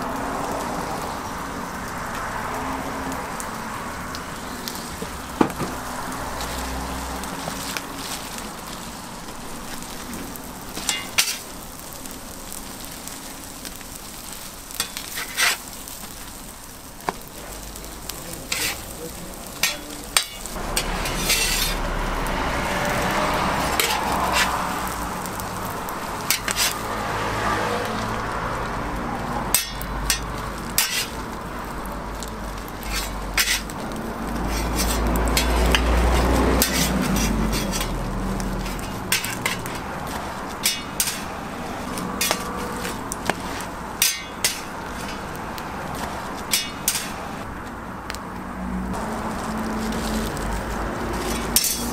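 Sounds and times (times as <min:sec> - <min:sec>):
toast sizzling in oil: 0:00.0 - 0:51.9
metal spatula tapping griddle: 0:10.8 - 0:11.5, 0:14.7 - 0:15.6, 0:19.5 - 0:21.8, 0:23.7 - 0:24.5, 0:26.2 - 0:26.8, 0:29.5 - 0:31.2, 0:32.7 - 0:41.3, 0:41.9 - 0:45.4, 0:46.0 - 0:47.2, 0:51.2 - 0:51.9.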